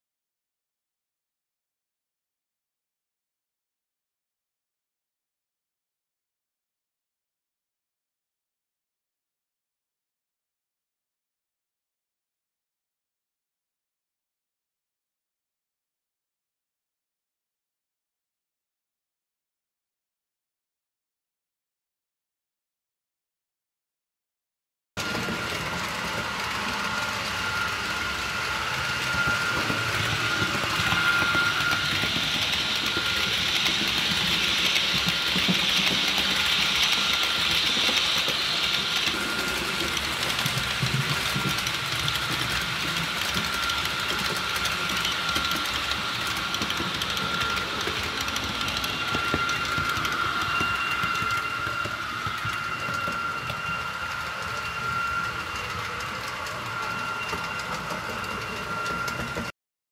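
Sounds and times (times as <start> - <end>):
model train motor whine: 25.0 - 59.5
wheels rushing on rails: 25.0 - 59.5.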